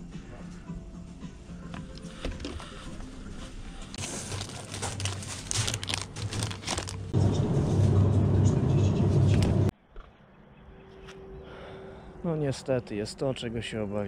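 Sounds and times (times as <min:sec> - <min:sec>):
packaging crinkling: 0:03.9 - 0:07.2.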